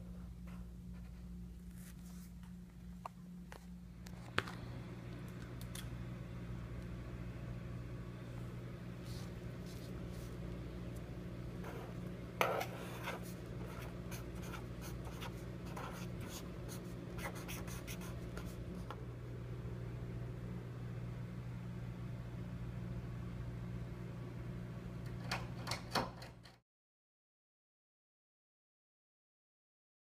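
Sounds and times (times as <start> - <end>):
steady low hum: 0.0 - 26.2
marker pen scratching on paper: 11.6 - 18.9.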